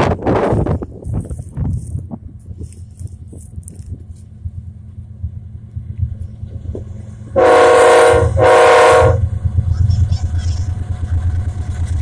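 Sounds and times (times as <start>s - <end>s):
diesel engines rumbling: 0.0s - 12.0s
locomotive air horn blasts: 7.3s - 9.3s.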